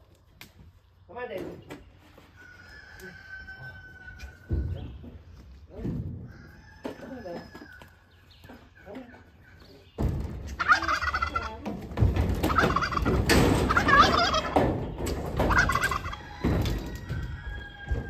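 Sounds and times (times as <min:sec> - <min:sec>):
thumps on livestock trailer: 0:10.0 - 0:10.6, 0:11.5 - 0:18.0
turkeys gobbling: 0:10.5 - 0:18.0.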